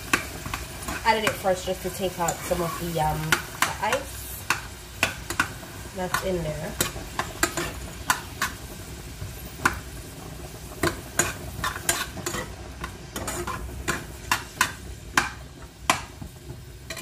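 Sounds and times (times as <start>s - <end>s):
vegetables sizzling in oil: 0.0s - 17.0s
metal spoon scraping a pot: 0.5s - 8.6s, 10.8s - 15.3s.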